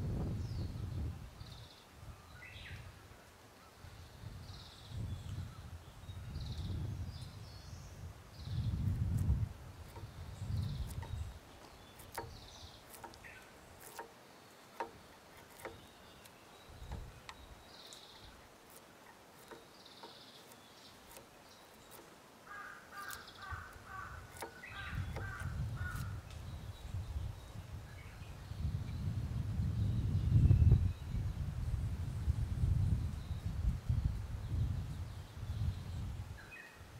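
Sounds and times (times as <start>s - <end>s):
birds calling: 3.6s - 28.7s
hand tools clicking and tapping wood: 9.2s - 26.4s.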